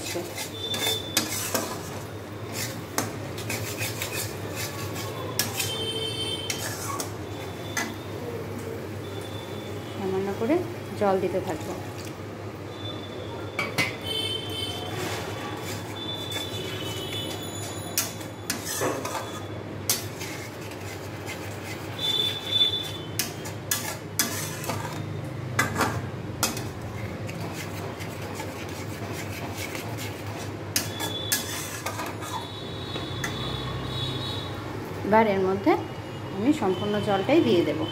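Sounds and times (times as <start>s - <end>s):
metal spatula scraping a pan: 0.0s - 8.1s, 13.6s - 33.5s.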